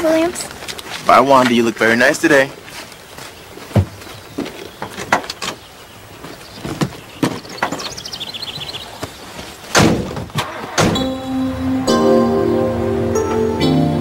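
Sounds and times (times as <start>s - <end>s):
van door thud: 9.7s - 11.2s.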